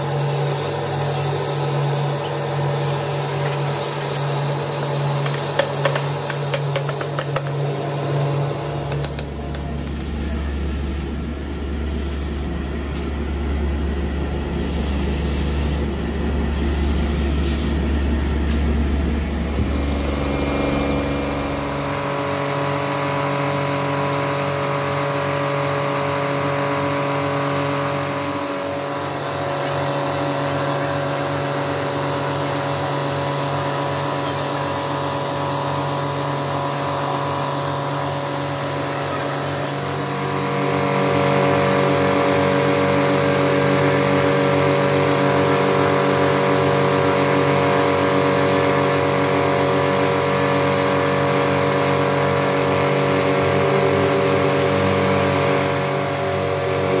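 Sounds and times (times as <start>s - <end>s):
buffing wheel motor running: 0.0s - 11.1s, 14.7s - 57.0s
deep machine hum: 15.8s - 33.6s, 36.1s - 57.0s.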